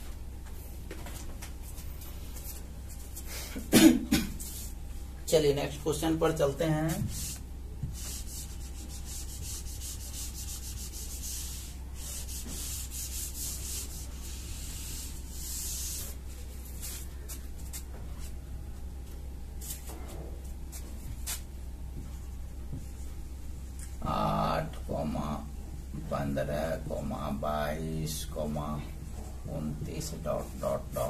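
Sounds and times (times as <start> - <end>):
low electrical hum: 0.0 - 31.0
duster wiping whiteboard: 6.7 - 18.4.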